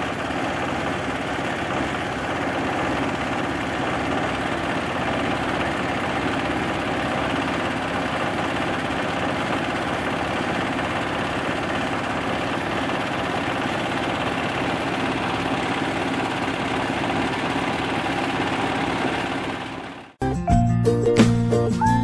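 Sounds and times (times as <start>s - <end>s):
grinding mill engine running: 0.0s - 20.2s
music: 20.2s - 22.0s.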